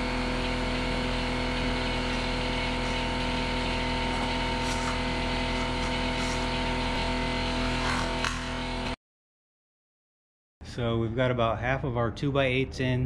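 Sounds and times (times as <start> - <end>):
motor humming: 0.0 - 9.0.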